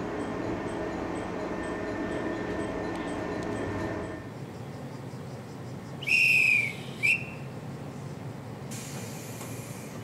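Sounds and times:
hand whistle blasts: 6.0s - 7.4s.

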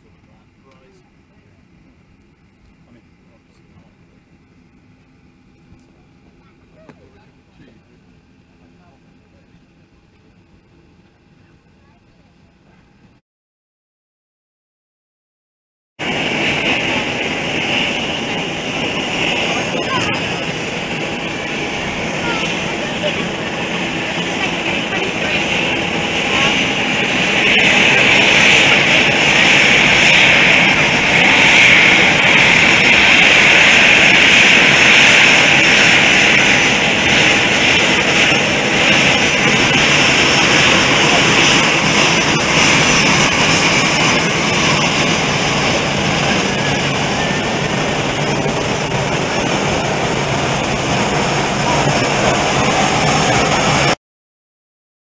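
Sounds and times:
jet engines taxiing: 0.0s - 13.1s, 16.0s - 54.0s.

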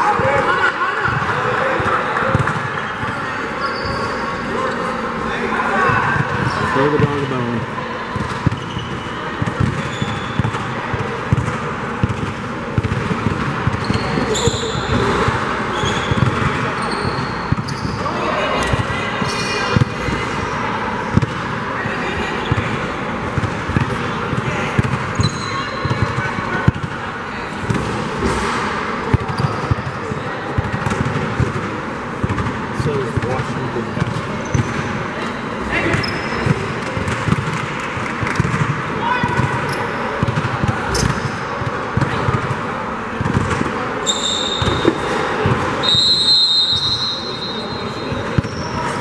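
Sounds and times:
large hall background noise: 0.0s - 49.0s
basketball bouncing on gym floor: 1.1s - 3.2s, 8.1s - 19.0s, 21.1s - 21.5s, 22.4s - 27.0s, 29.0s - 34.9s, 36.0s - 42.6s, 43.2s - 45.7s, 48.1s - 48.8s
high whistle-like tone: 44.0s - 44.9s, 45.8s - 48.3s.

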